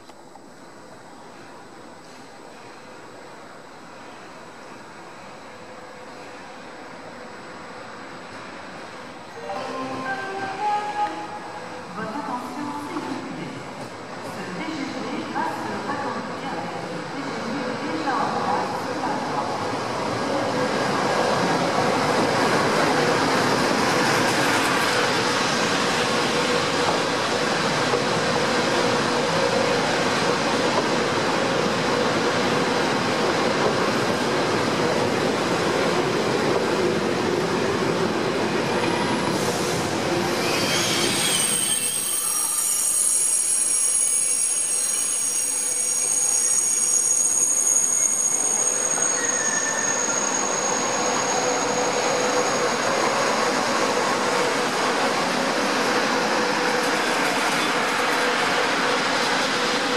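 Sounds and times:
high-speed train passing: 0.2 - 59.9
wheel squeal: 40.4 - 53.0.

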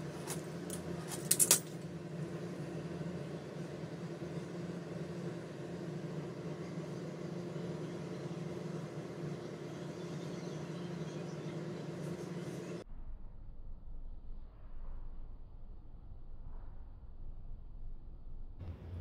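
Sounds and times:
machine hum: 0.0 - 12.8, 18.6 - 19.0.

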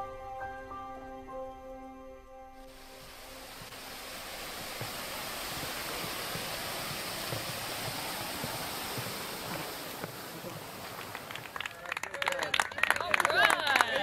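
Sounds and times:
waterfall rushing over rocks: 2.7 - 11.6.

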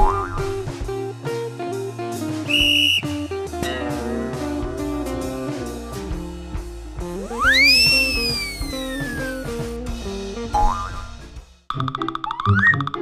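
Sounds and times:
comic guitar and drums music: 0.0 - 13.0
cartoon slide whistle: 2.5 - 3.0, 7.2 - 9.6
steady whistle note: 2.5 - 3.1, 7.2 - 9.6.

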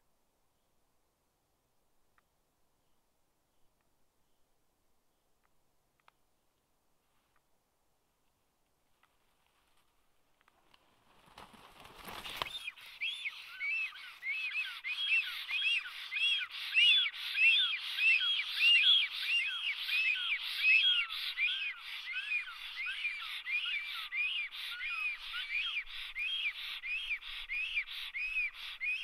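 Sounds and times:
wingbeats rustling: 8.9 - 23.5
stork high whistling calls: 12.2 - 29.0.

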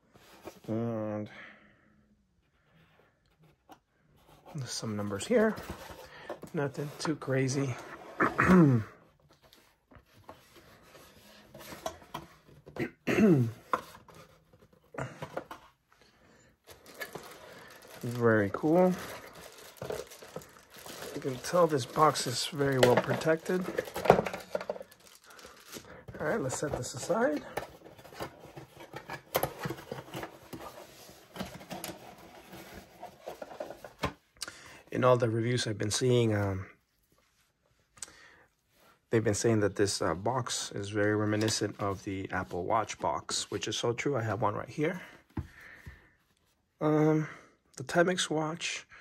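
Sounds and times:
faint rustling: 16.6 - 34.0.

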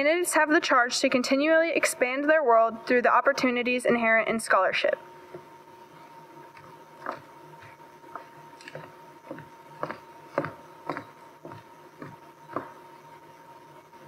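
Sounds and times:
faint steady hum: 0.0 - 14.0
footsteps on wooden floor: 6.6 - 12.8.

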